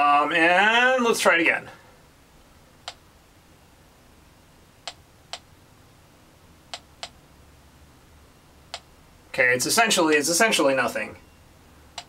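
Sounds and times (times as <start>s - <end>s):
geiger counter clicking: 2.8s - 3.0s, 4.8s - 5.5s, 8.7s - 8.9s.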